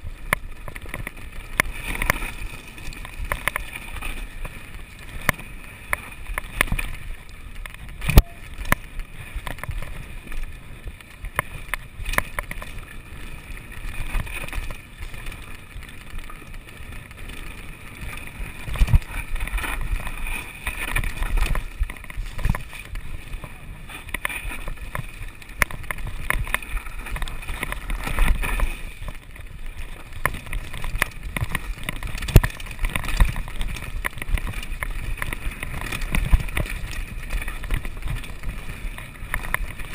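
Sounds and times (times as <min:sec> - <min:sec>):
bike rattling over stones: 0:00.0 - 0:39.9.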